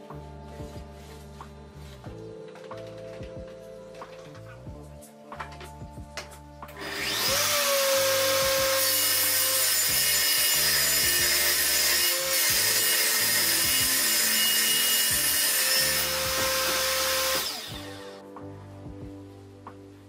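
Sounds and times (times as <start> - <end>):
table saw cutting plywood: 6.8 - 18.2.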